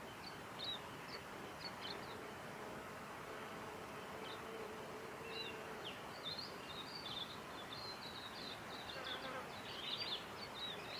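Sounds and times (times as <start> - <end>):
small birds chirping: 0.0 - 2.4, 5.2 - 10.9
steady forest hiss: 0.0 - 10.9.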